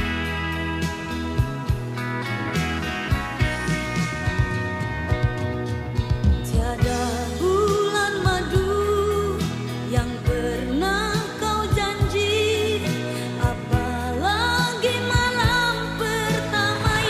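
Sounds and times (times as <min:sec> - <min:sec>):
pop song with drum beat: 0:00.0 - 0:17.0
person singing: 0:06.4 - 0:17.0.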